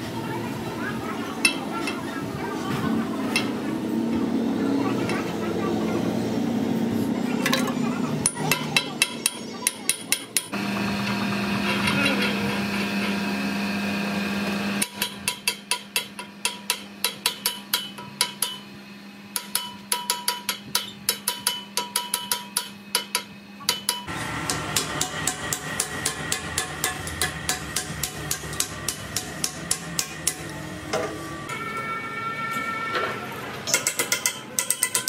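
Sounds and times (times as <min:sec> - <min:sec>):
hammer striking metal: 0:07.4 - 0:10.6, 0:14.8 - 0:18.6, 0:19.3 - 0:31.6, 0:33.7 - 0:35.0.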